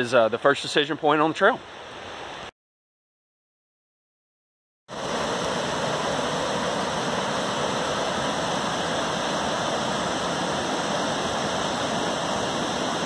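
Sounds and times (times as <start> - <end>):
creek rapids rushing over boulders: 4.9 - 13.0.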